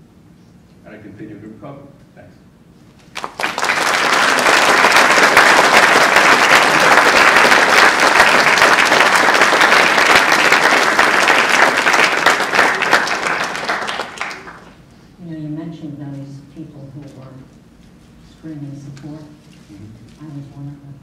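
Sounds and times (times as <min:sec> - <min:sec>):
audience applauding: 0:03.1 - 0:14.8.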